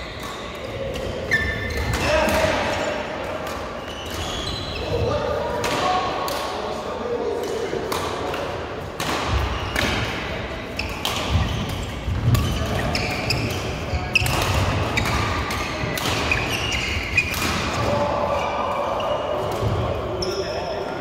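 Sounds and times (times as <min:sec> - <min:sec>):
players' voices: 0:00.0 - 0:21.0
shoe squeaks on court: 0:01.2 - 0:02.2, 0:03.8 - 0:05.0, 0:10.8 - 0:17.4
racket hitting shuttlecock: 0:07.4 - 0:18.0.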